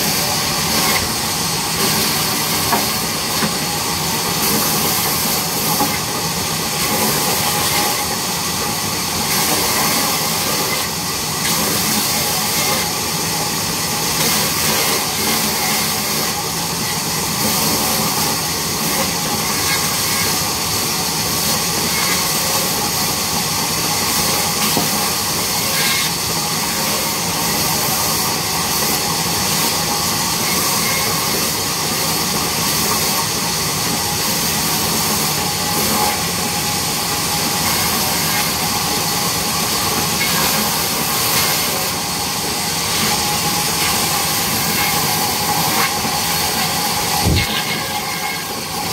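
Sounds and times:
band saw cutting timber: 0:00.0 - 0:23.2, 0:34.3 - 0:48.9.

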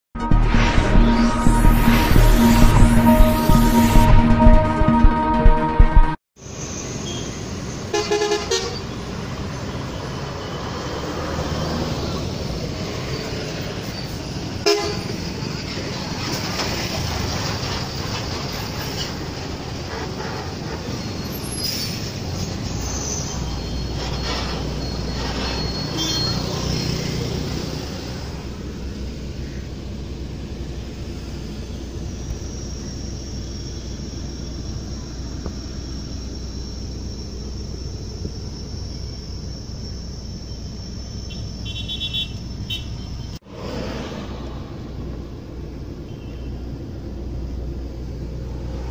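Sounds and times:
street traffic: 0:00.2 - 0:48.9
truck diesel engine rumbling: 0:00.2 - 0:48.9
vehicle horn honking: 0:07.9 - 0:08.9, 0:14.6 - 0:15.1, 0:41.3 - 0:43.0, 0:46.1 - 0:46.6.

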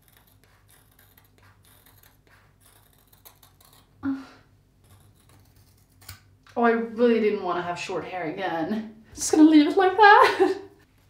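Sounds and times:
scissors snipping hair: 0:04.9 - 0:06.3.

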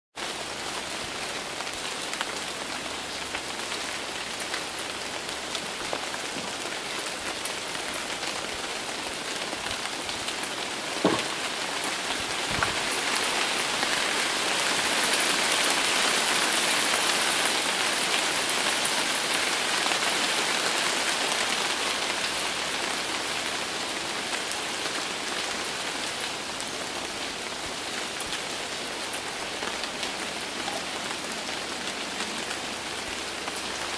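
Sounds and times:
steady rain falling: 0:00.2 - 0:33.9
brief knocks: 0:11.0 - 0:11.4.

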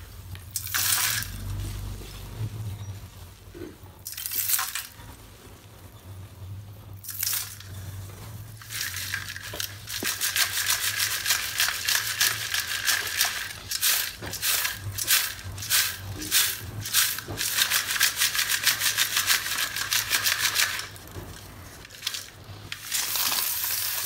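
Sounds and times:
clay chips rattling in mesh sieve: 0:08.6 - 0:21.0, 0:21.8 - 0:24.0.

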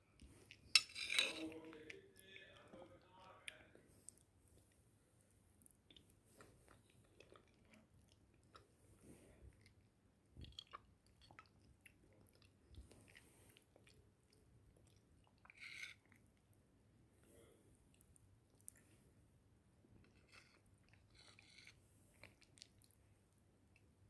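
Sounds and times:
spoon scraping ceramic plate: 0:00.8 - 0:01.6, 0:20.2 - 0:21.8
chewing and biting food: 0:10.4 - 0:16.2.

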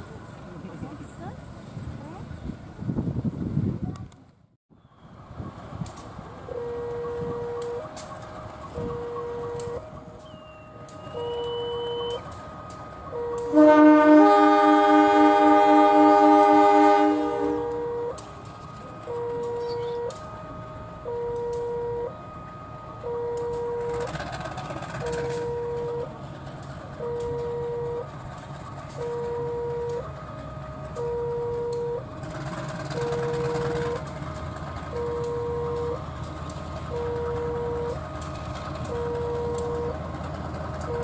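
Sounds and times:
diesel locomotive rumble: 0:00.0 - 0:41.0
electronic warning alarm tone: 0:06.5 - 0:07.9, 0:08.5 - 0:14.5, 0:16.3 - 0:18.2, 0:18.9 - 0:24.2, 0:25.0 - 0:26.2, 0:27.0 - 0:28.1, 0:29.0 - 0:30.1, 0:31.0 - 0:32.1, 0:32.8 - 0:34.1, 0:34.9 - 0:36.1, 0:36.9 - 0:38.2, 0:38.8 - 0:40.0.

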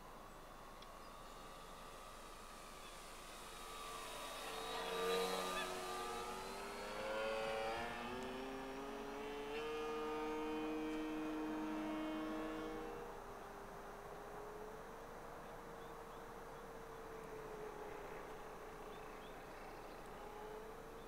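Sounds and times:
model plane motor whining: 0:00.0 - 0:14.5.

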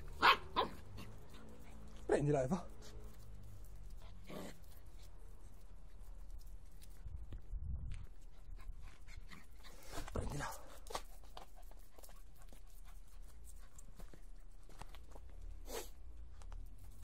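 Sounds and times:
faint scuffs and clicks: 0:09.7 - 0:17.0.

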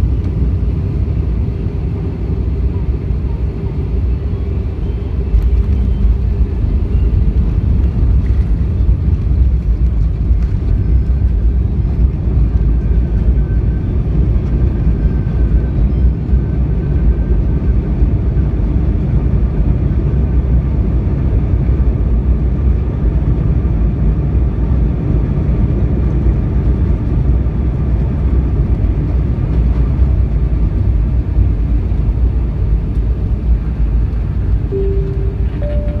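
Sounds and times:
airplane cabin rumble: 0:00.0 - 0:36.0
short cabin tones: 0:34.7 - 0:36.0.

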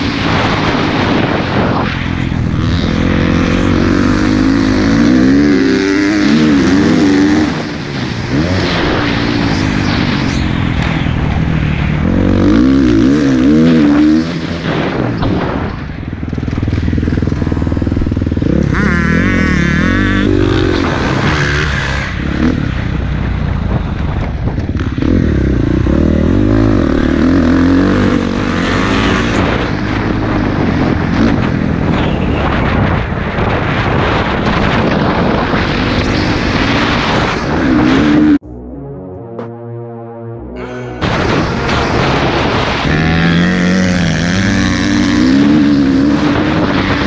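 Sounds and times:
dirt bike engine revving: 0:00.0 - 0:11.0, 0:11.8 - 0:22.8, 0:24.8 - 0:31.5, 0:40.6 - 0:47.0.

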